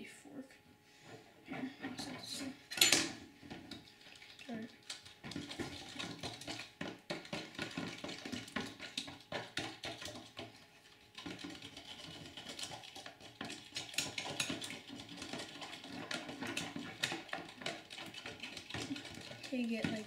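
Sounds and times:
spoons scraping plastic container: 0:05.2 - 0:20.0.

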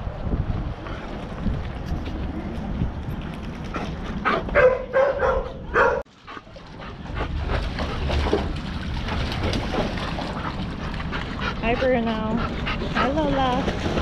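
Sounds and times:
wind rumble on microphone: 0:00.0 - 0:05.8
dogs barking and yelping: 0:04.2 - 0:07.6.

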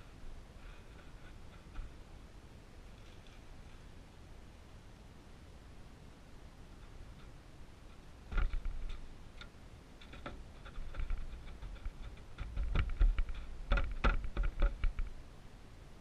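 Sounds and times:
dull knocks against plastic: 0:10.1 - 0:15.1.

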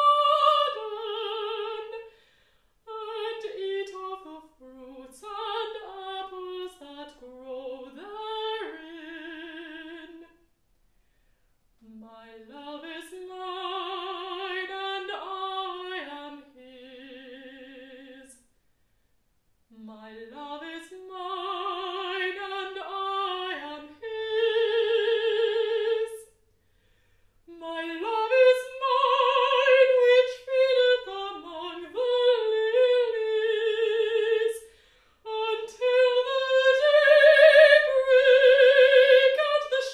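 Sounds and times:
mezzo-soprano singing solo: 0:00.0 - 0:02.1, 0:02.9 - 0:10.4, 0:11.8 - 0:18.4, 0:19.7 - 0:26.4, 0:27.5 - 0:39.9.

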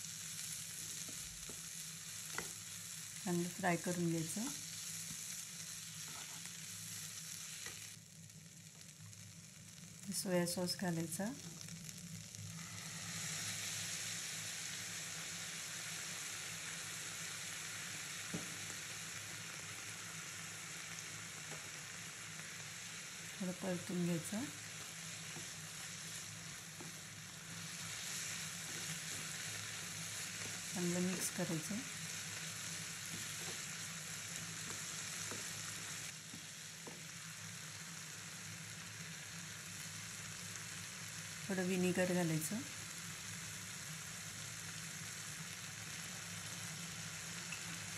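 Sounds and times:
vegetables sizzling in frying pan: 0:00.0 - 0:47.9.

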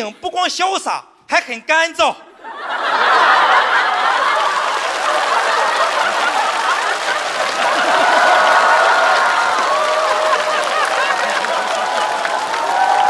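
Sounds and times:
audience laughing: 0:02.3 - 0:13.0
audience clapping: 0:03.0 - 0:13.0.

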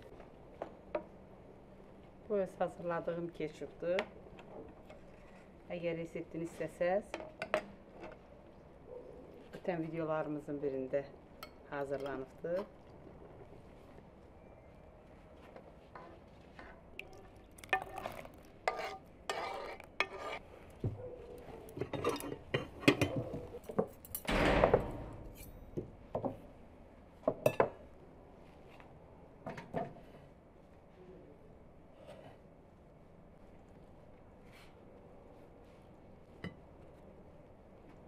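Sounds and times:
dish scraping: 0:17.6 - 0:20.4, 0:21.8 - 0:23.5
tableware clinking and knocking: 0:21.8 - 0:26.4.

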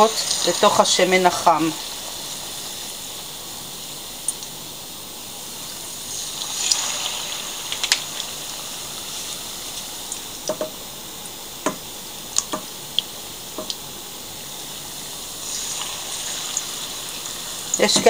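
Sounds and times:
deep-frying sizzle: 0:00.0 - 0:18.0
oil popping and clicking: 0:12.4 - 0:13.8.

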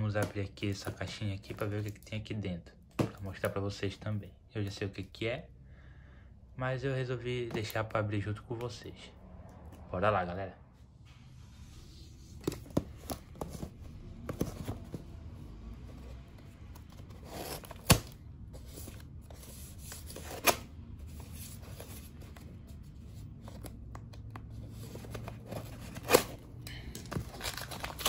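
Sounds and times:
tearing plastic wrap and cardboard: 0:27.1 - 0:28.0.

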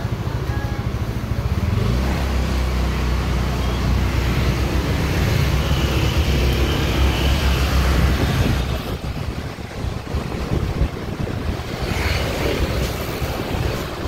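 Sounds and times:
street traffic noise: 0:00.0 - 0:14.0.

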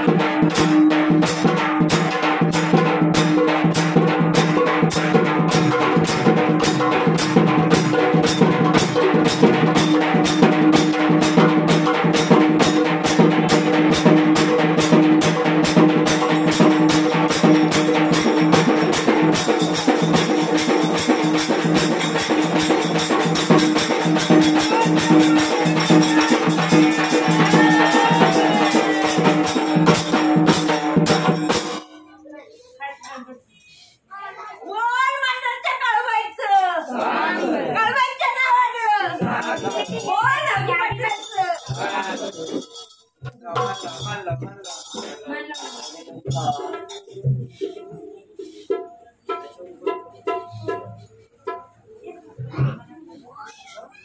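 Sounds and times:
fast hand drum beat: 0:00.0 - 0:31.9, 0:39.0 - 0:42.6.

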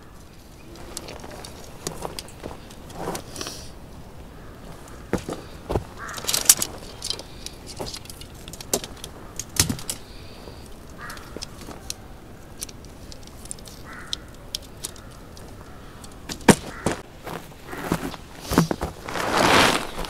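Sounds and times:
tent poles clicking: 0:00.2 - 0:03.8, 0:04.6 - 0:20.0.

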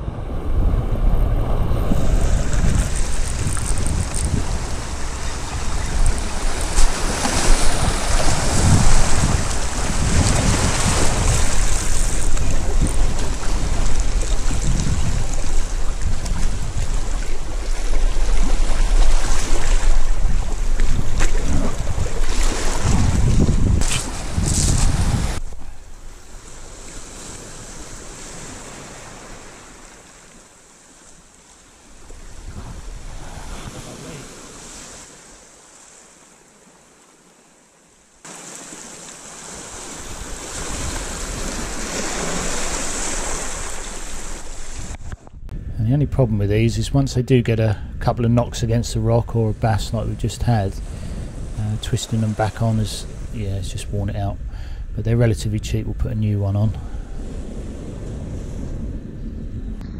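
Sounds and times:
wind buffeting microphone: 0:00.0 - 0:29.6, 0:32.0 - 0:34.4, 0:39.8 - 0:59.9
sea waves washing over rocks: 0:00.0 - 0:45.3.

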